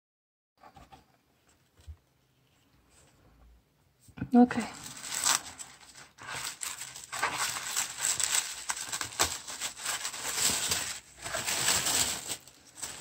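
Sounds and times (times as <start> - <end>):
tissue paper rustling: 4.6 - 13.0.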